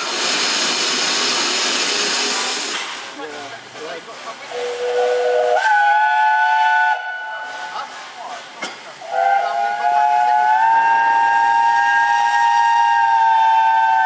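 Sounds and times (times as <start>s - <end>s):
steam locomotive hissing: 0.0s - 14.0s
steam whistle blowing: 4.5s - 7.8s, 9.0s - 14.0s.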